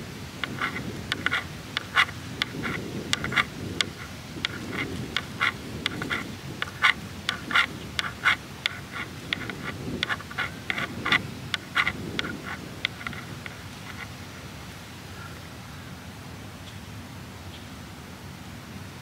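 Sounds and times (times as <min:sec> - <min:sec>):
brush tapping and scratching paper: 0:00.4 - 0:14.1.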